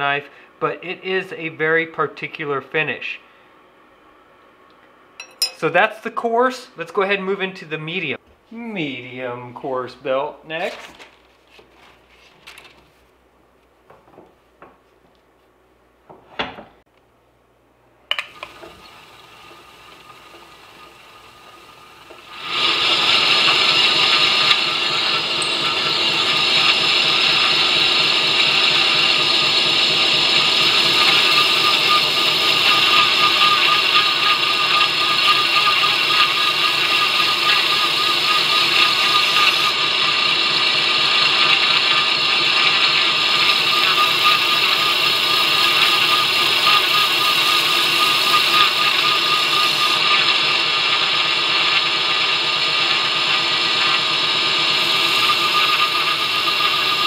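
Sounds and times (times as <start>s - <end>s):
belt grinder whine: 18.2s - 57.0s.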